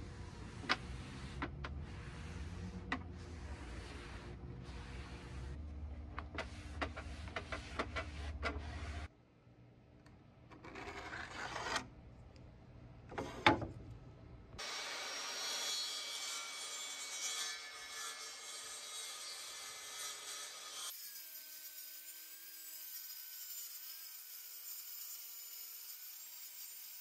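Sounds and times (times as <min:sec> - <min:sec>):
cloth rag rubbing wood: 0:00.4 - 0:05.6
marker scratching along ruler: 0:00.5 - 0:05.6, 0:06.3 - 0:09.1, 0:10.8 - 0:11.8.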